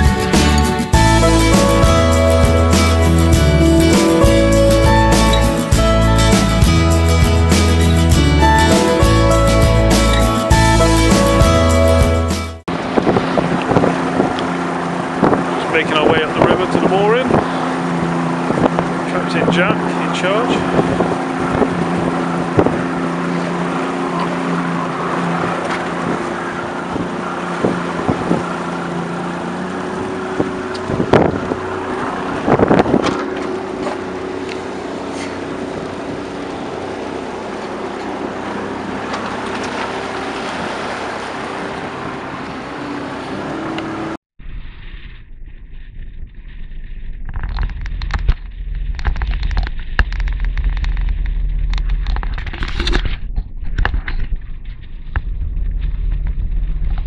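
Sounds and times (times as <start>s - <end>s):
motorboat engine running: 0.0s - 57.0s
wind buffeting microphone: 12.7s - 43.6s, 44.4s - 57.0s
low rumble: 44.4s - 57.0s.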